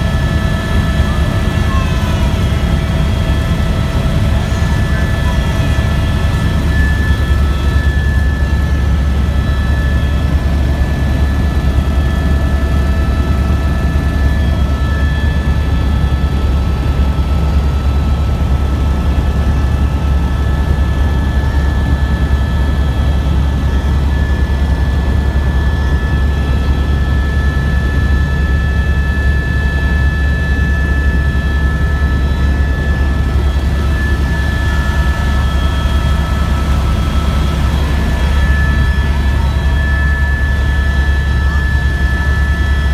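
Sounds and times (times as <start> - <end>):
high whine: 0.0 - 15.8, 29.8 - 42.9
helicopter rotor drone: 0.0 - 42.9.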